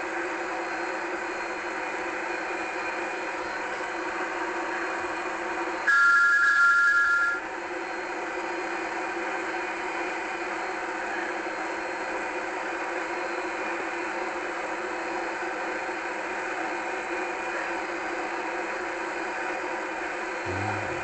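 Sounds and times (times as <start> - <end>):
small motor humming: 20.4 - 21.0.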